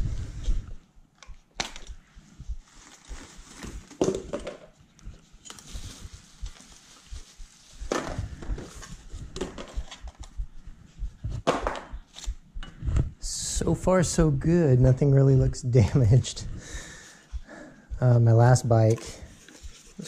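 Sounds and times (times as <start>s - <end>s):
sharp snaps and clicks: 1.1s - 2.1s, 12.1s - 12.4s
plastic packaging crinkling: 2.6s - 4.7s, 5.4s - 7.8s.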